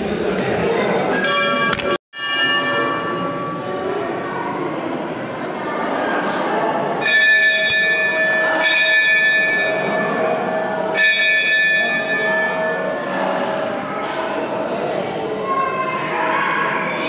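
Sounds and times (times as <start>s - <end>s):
temple bell ringing: 1.1s - 5.0s, 6.1s - 15.2s.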